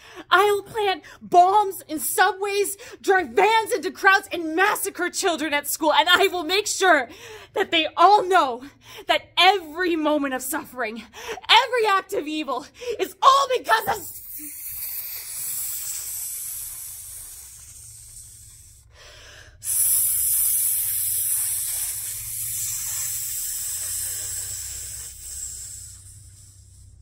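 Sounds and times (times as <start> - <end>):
woman hissing through teeth: 13.8 - 18.8, 19.6 - 27.0.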